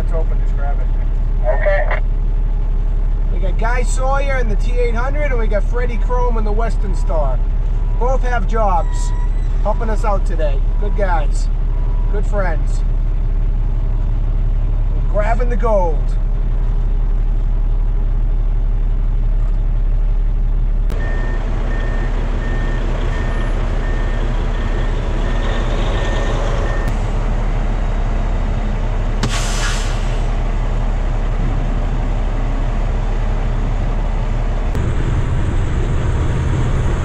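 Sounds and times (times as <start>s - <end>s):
diesel truck engines running: 0.0s - 37.0s
reversing alarm beeping: 8.7s - 9.7s, 20.9s - 27.0s
air brakes hissing: 29.2s - 30.4s.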